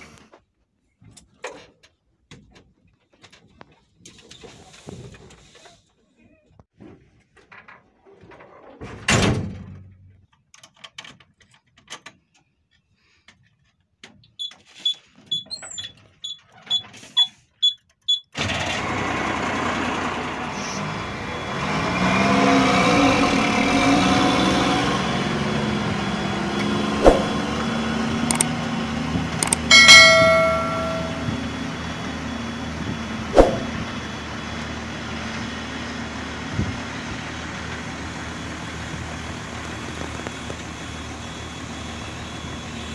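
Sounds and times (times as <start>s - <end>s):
diesel truck engine pulling away: 18.4s - 29.5s, 31.4s - 42.9s
clicks: 29.4s - 31.3s
short beeps: 29.4s - 31.4s.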